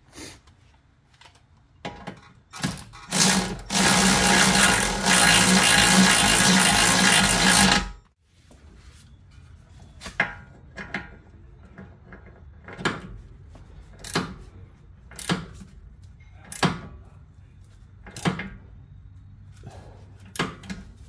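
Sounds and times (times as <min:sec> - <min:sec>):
power tool humming: 0:03.1 - 0:08.0.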